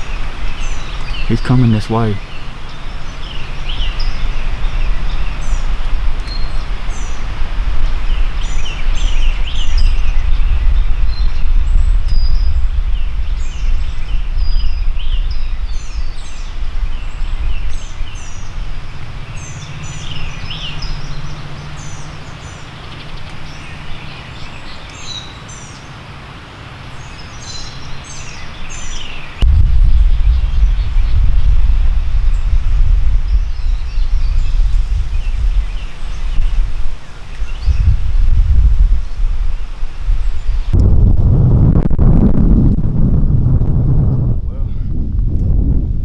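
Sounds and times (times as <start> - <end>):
steady low rumble: 0.0 - 24.5, 29.4 - 46.0
songbirds chirping and singing: 0.0 - 26.0, 26.8 - 31.6, 33.2 - 38.3.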